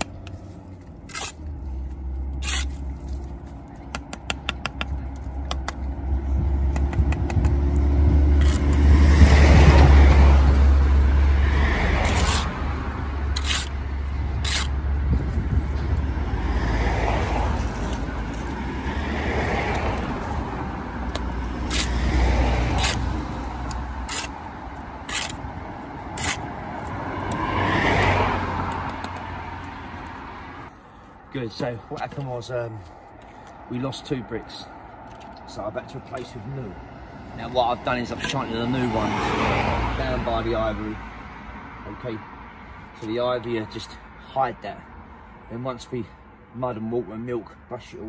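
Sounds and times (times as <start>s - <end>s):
trowel scraping on mortar: 1.0s - 1.5s, 2.4s - 2.9s, 12.0s - 12.6s, 13.3s - 13.8s, 14.4s - 14.8s, 21.6s - 23.2s, 24.0s - 25.4s, 26.1s - 27.0s
road vehicle rumbling past: 5.0s - 31.3s, 33.6s - 42.8s.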